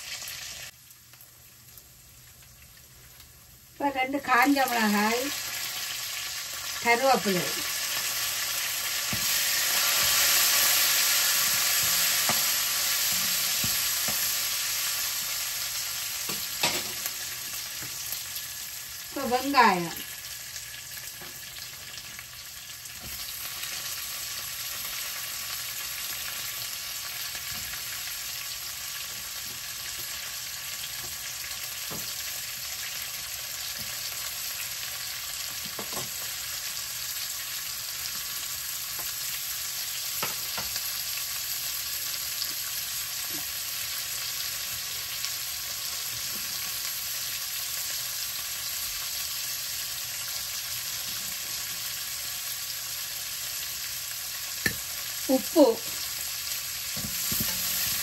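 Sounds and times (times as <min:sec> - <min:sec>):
onions sizzling in oil: 0:00.0 - 0:58.0
spoon knocking pan: 0:11.4 - 0:14.4, 0:16.2 - 0:17.1, 0:35.6 - 0:36.2, 0:40.2 - 0:40.8, 0:54.6 - 0:54.9, 0:57.0 - 0:58.0.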